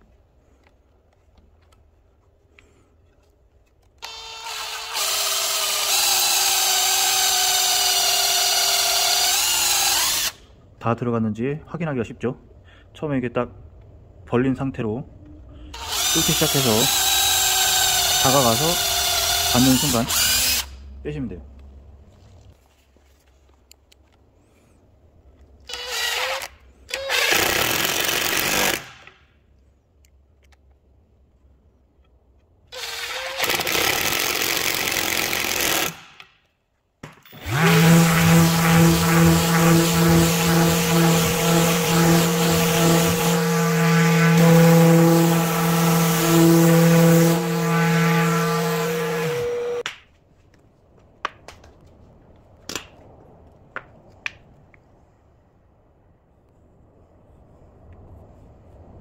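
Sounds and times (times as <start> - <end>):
power drill running: 4.0 - 10.4, 15.7 - 20.8, 25.7 - 28.9, 32.7 - 36.1, 37.3 - 49.8
orbital sander humming and whining: 37.4 - 49.8.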